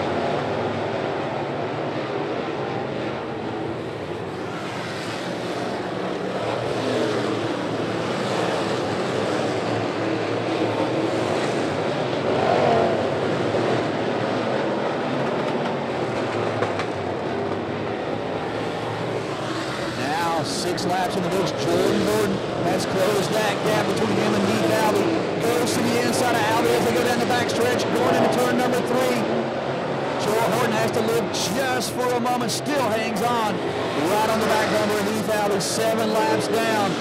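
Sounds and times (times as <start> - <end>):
race car engines revving: 0.0 - 37.0.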